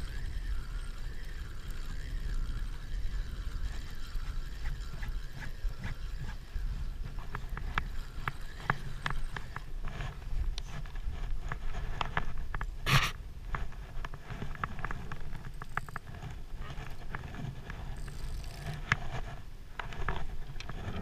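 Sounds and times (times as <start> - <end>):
wind rumble on microphone: 0.0 - 21.0
sharp scrape: 12.8 - 13.2.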